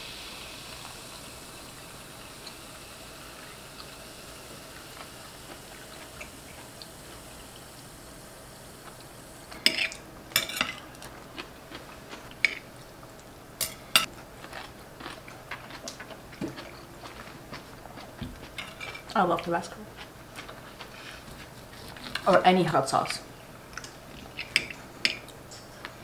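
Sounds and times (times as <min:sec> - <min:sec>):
soda fizzing in glass: 0:00.0 - 0:10.0.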